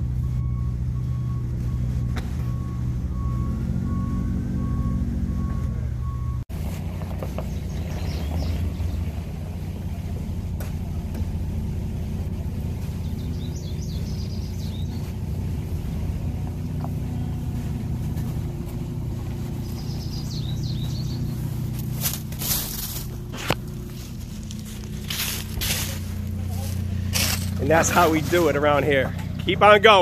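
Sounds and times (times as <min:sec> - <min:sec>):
vehicle engine idling: 0:00.0 - 0:30.0
birds chirping: 0:06.9 - 0:30.0.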